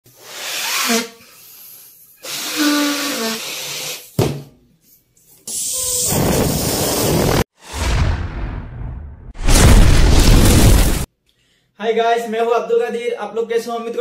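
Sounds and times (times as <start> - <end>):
squeaky balloon neck: 0.2 - 4.1
breath puffing into balloon: 0.2 - 4.2.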